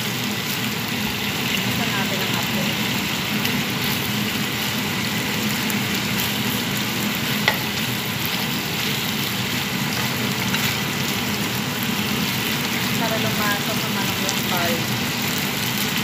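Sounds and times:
meat sizzling in oil: 0.0s - 16.0s.

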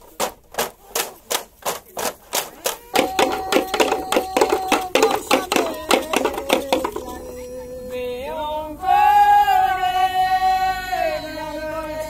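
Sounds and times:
percussion knocks: 3.0s - 7.3s
group chanting: 3.0s - 12.0s.

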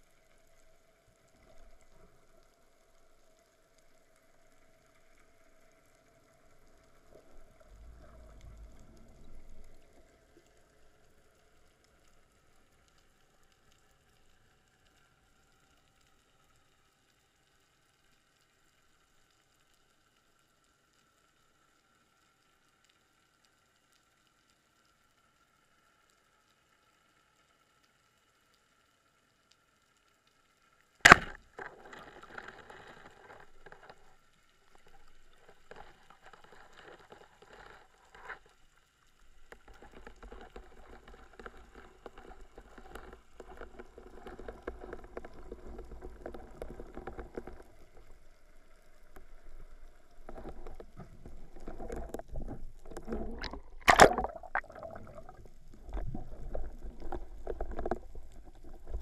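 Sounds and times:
faint water noise: 0.0s - 59.0s
sharp loud click underwater: 31.0s - 33.1s, 51.7s - 58.0s.

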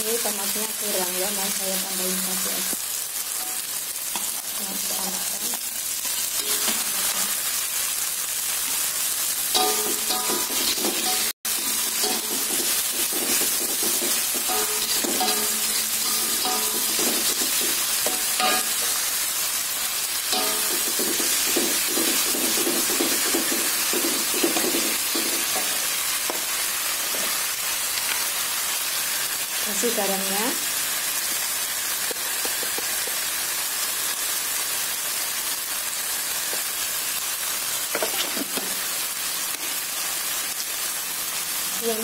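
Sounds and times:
vegetables sizzling in hot oil: 0.0s - 42.0s
metal spatula scraping a wok: 6.3s - 7.4s, 9.6s - 19.2s.

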